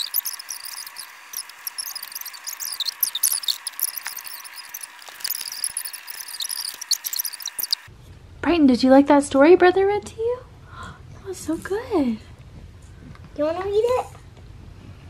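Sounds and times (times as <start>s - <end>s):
thin hiss: 0.0s - 7.9s.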